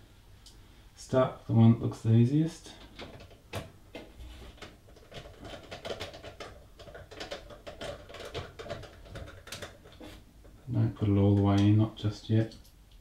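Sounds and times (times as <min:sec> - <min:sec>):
screw clicking and scratching: 0:02.9 - 0:10.6.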